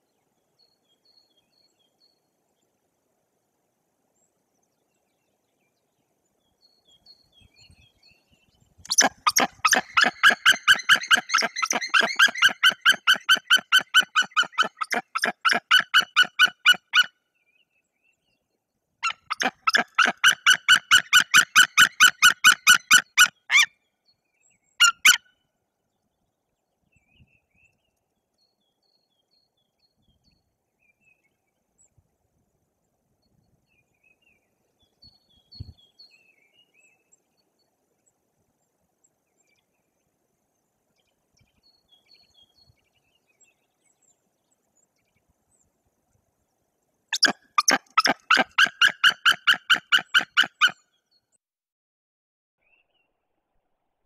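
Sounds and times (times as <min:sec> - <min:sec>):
eagle calling rapid notes: 0:08.9 - 0:17.1, 0:19.0 - 0:23.7, 0:24.8 - 0:25.2, 0:47.2 - 0:50.8.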